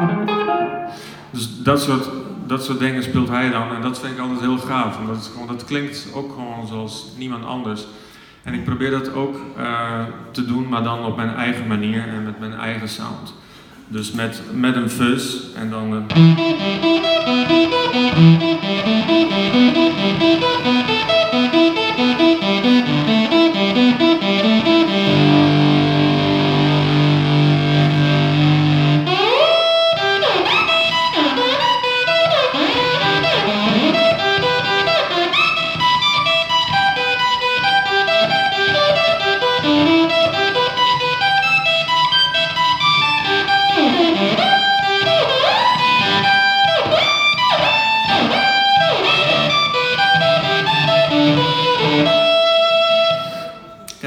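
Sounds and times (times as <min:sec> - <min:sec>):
fuzz electric guitar: 0:00.0 - 0:01.3, 0:16.1 - 0:53.6.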